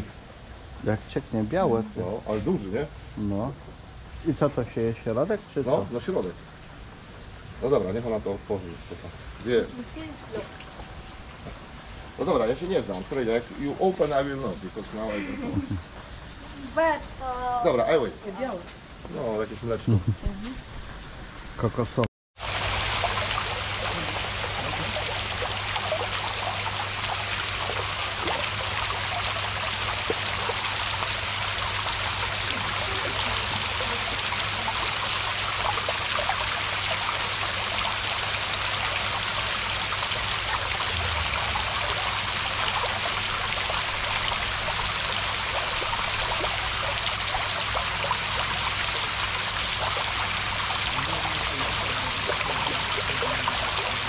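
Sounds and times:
water cascading into pool: 22.4s - 54.0s
low hum: 40.4s - 45.2s.

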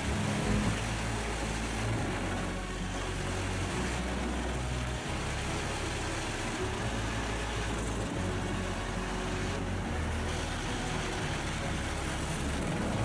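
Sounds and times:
heavy engine drone: 0.0s - 13.0s
wood chipper grinding wood: 0.0s - 13.0s.

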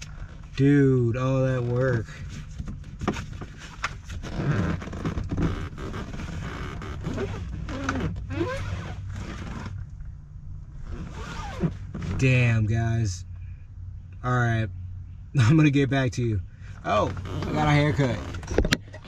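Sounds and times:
tire scraping and knocking in car: 0.0s - 10.1s, 10.8s - 12.5s, 16.8s - 19.0s
short squeaks: 4.1s - 9.8s, 10.8s - 12.2s, 16.8s - 19.0s.

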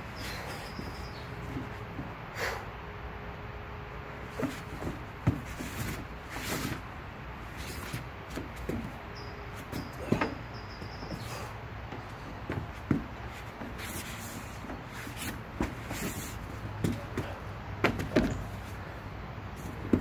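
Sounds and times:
outdoor background hiss: 0.0s - 20.0s
feet knocking on wooden deck: 4.4s - 5.6s, 11.9s - 13.8s.

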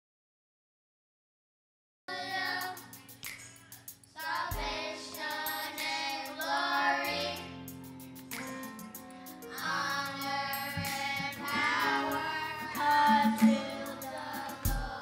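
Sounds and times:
people singing: 2.1s - 7.7s, 9.4s - 15.0s
instrumental accompaniment: 7.2s - 15.0s.

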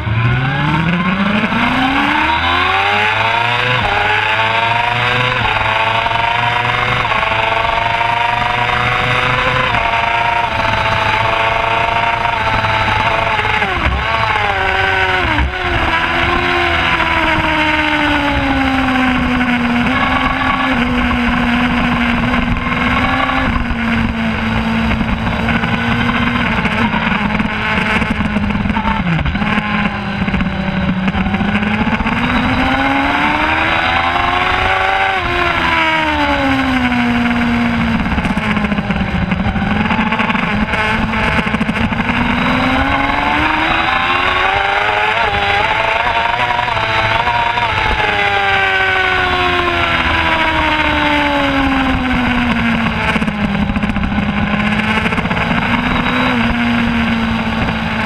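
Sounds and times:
steady rushing noise: 0.0s - 58.0s
superbike engine at racing speed: 0.0s - 58.0s.

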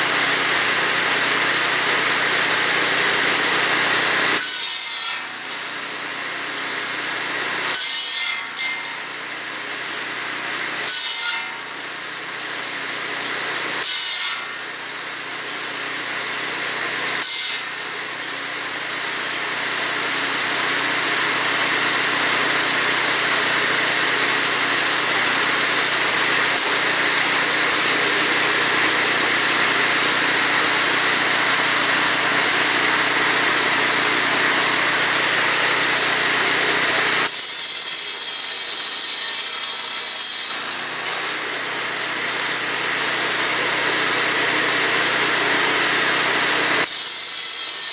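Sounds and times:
saw engine running: 0.0s - 4.5s, 14.5s - 47.9s
circular saw ripping through wood: 0.0s - 47.9s.

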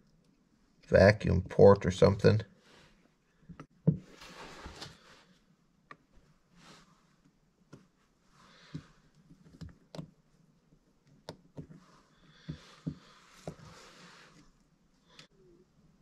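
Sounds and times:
soft rustling: 6.1s - 10.8s.

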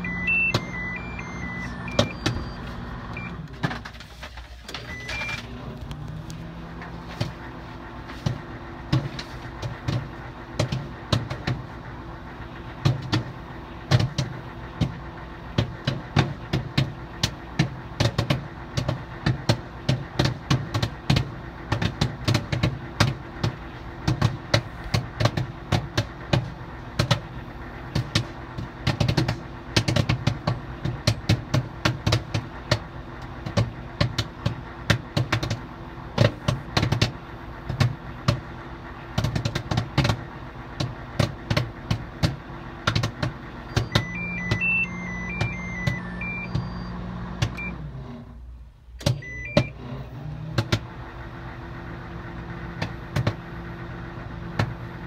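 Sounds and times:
microwave electronic beeps: 0.0s - 3.5s, 4.8s - 5.5s, 43.6s - 47.8s, 49.1s - 49.8s
microwave oven hum: 0.0s - 3.7s, 42.0s - 50.5s.

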